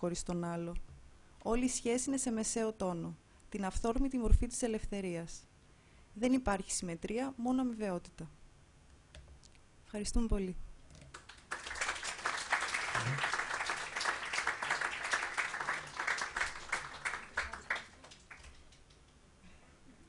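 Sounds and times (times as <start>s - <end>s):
audience applauding: 11.1s - 18.8s.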